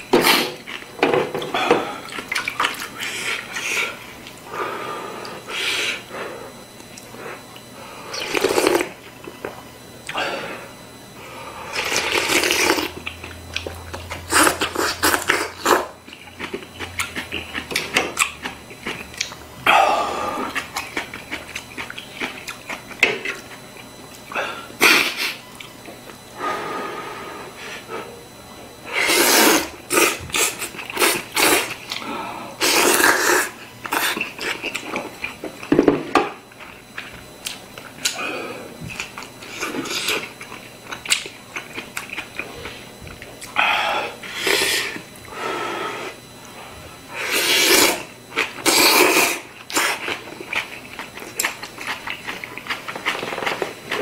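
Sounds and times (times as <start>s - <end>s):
quiet chewing: 11.7s - 19.4s, 20.3s - 24.3s, 32.7s - 35.7s, 38.9s - 43.6s, 49.6s - 54.0s
loud slurping of noodles: 28.9s - 31.7s, 47.2s - 50.1s.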